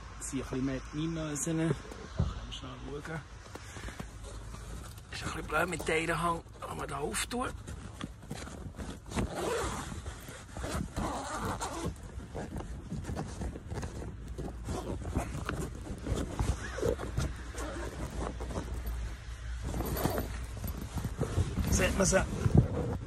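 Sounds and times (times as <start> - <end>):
tarp rustling: 3.4 - 23.0
zipper pulled open: 7.5 - 23.0.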